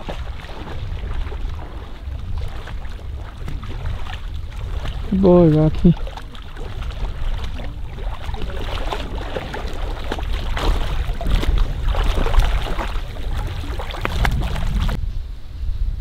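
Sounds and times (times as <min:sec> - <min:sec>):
dog splashing through water: 0:00.0 - 0:15.0
wind rumble on microphone: 0:00.0 - 0:16.0.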